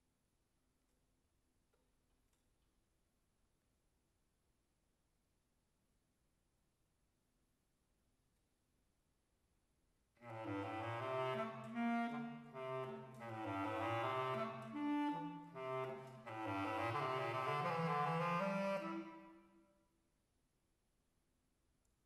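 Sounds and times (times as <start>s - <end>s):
bass clarinet playing: 10.2s - 19.4s.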